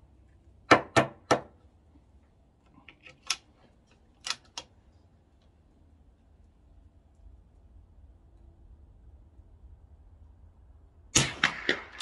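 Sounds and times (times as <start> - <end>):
rifle magazine and bolt clicks: 2.9 - 4.7.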